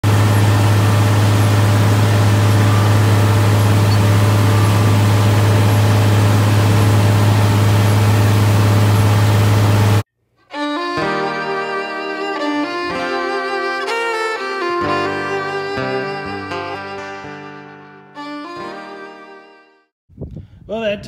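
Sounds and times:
planter rushing noise: 0.0 - 17.0
tractor engine drone: 0.0 - 17.3
violin music: 1.8 - 5.7, 10.4 - 19.9.

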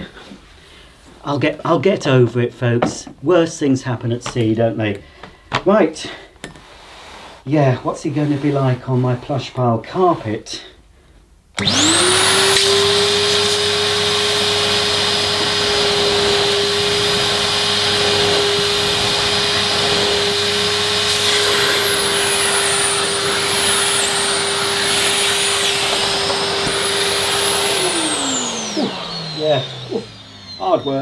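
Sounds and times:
vacuum cleaner motor running: 11.6 - 31.0
vacuum floor tool on carpet: 11.6 - 31.0.

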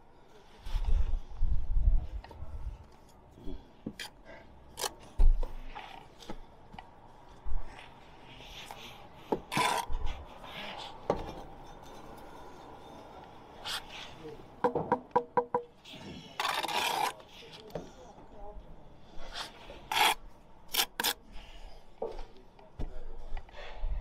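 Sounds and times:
trowel scraping mortar: 7.8 - 10.8, 15.8 - 17.7, 19.2 - 21.6.

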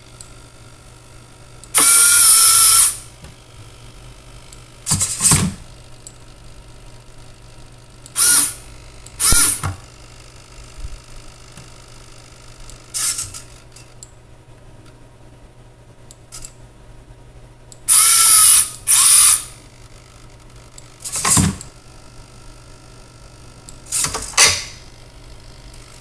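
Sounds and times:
small electric motors whining: 1.7 - 3.1, 8.1 - 9.7, 12.9 - 13.9, 17.9 - 21.3.

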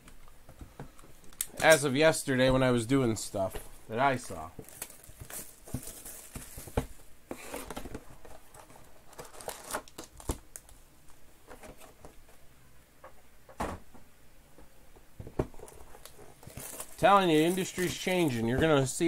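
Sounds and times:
foil packs crinkling: 3.4 - 10.8, 15.6 - 18.6.

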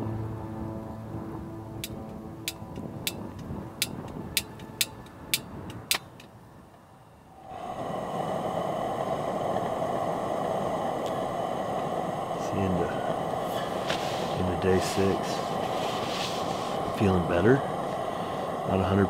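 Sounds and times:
steady rushing noise: 0.0 - 19.0
sharp clicks: 1.8 - 6.3.

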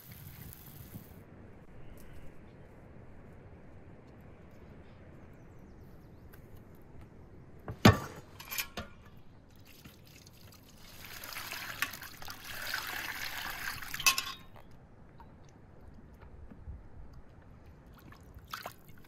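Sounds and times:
water pouring into a bowl: 9.6 - 14.4.

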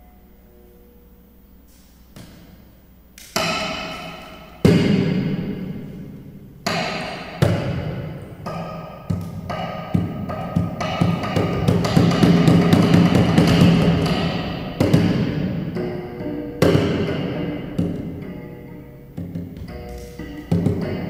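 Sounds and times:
percussive amplified cello: 3.2 - 5.8, 6.6 - 18.5, 19.1 - 21.0.

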